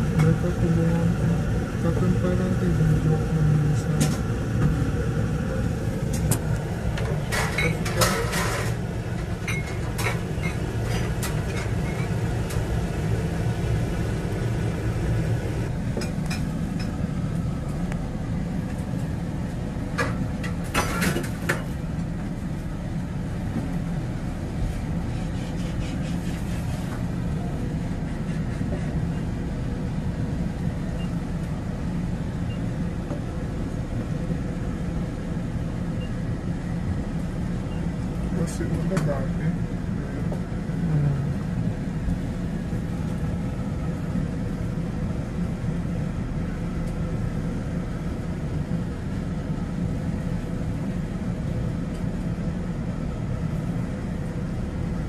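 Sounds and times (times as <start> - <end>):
steady low rumble: 0.0 - 25.9.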